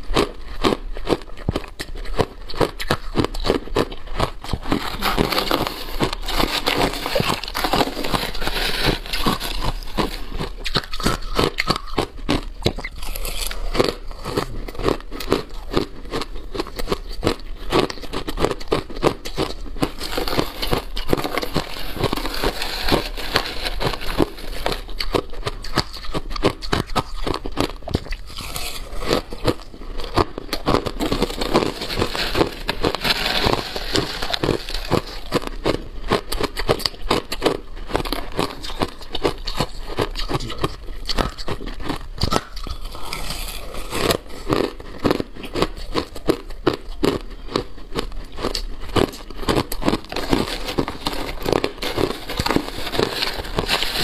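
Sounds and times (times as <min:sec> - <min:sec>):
crushed ice being chewed: 0:00.0 - 0:54.0
metal spoon scraping ice: 0:04.7 - 0:12.0, 0:19.8 - 0:26.2, 0:30.9 - 0:35.6, 0:41.2 - 0:45.2, 0:49.1 - 0:54.0.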